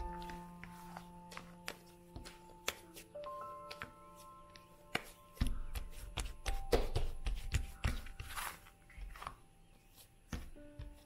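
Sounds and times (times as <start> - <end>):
gentle music with bell notes: 0.0 - 9.7.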